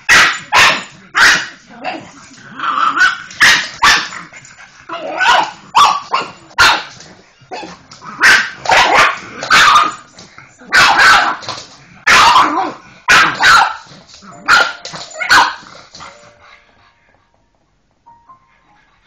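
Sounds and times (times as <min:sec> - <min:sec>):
dog barking: 0:00.0 - 0:01.5, 0:03.0 - 0:04.1, 0:05.2 - 0:06.9, 0:07.5 - 0:10.0, 0:10.7 - 0:11.4, 0:12.0 - 0:13.9, 0:14.5 - 0:15.6.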